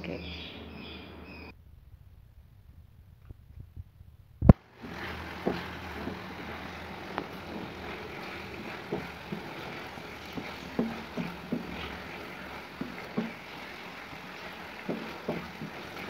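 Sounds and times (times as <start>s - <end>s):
wooden spatula scraping a metal pan: 4.6s - 16.0s
spatula knocking against pan: 5.0s - 16.0s.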